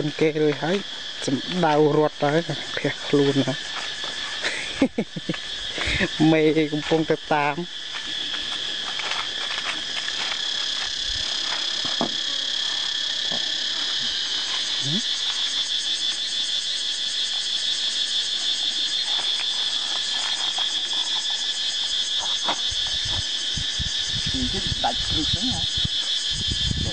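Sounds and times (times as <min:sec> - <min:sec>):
insects shrilling: 0:00.0 - 0:26.9.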